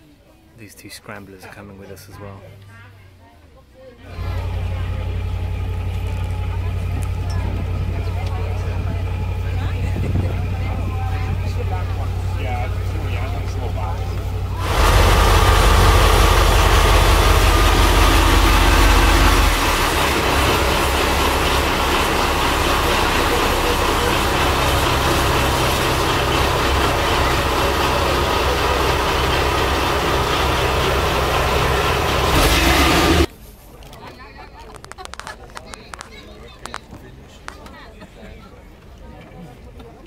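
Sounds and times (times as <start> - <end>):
boat engine running loud: 4.1 - 33.3.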